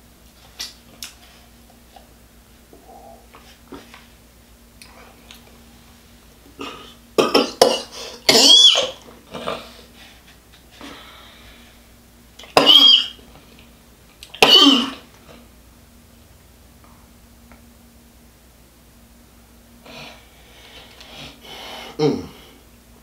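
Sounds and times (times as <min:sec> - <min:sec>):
man coughing: 0:06.6 - 0:08.9, 0:12.6 - 0:13.1, 0:14.4 - 0:15.0, 0:21.9 - 0:22.5.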